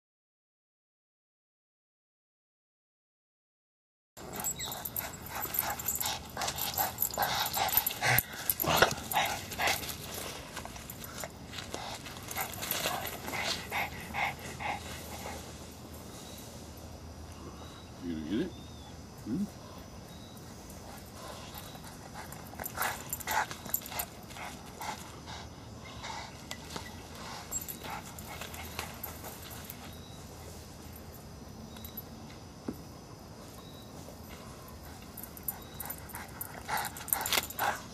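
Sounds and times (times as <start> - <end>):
dogs whining and yipping: 4.2 - 10.2, 21.0 - 25.0, 25.8 - 30.6, 34.5 - 37.9.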